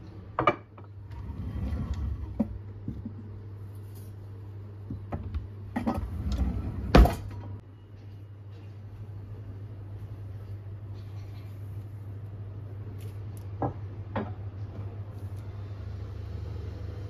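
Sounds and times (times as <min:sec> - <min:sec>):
drawer shutting with a knock: 0:05.8 - 0:07.4.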